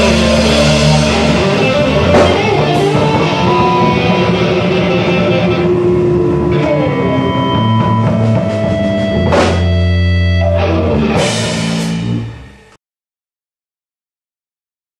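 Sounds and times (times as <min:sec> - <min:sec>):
cymbal crashes: 0:00.0 - 0:04.3, 0:10.9 - 0:12.8
blues-rock band playing: 0:00.0 - 0:12.7.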